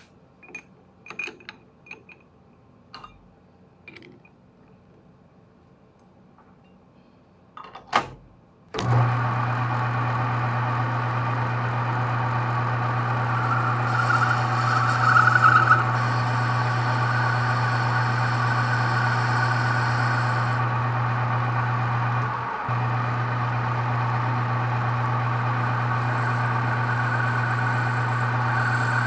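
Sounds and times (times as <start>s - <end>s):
lathe motor humming: 8.8s - 29.0s
high-pitched cutting whine: 12.5s - 29.0s.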